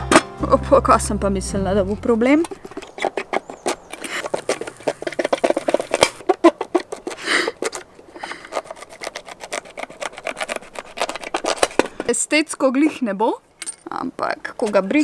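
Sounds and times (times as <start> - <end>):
knife slicing zucchini: 8.3 - 11.7.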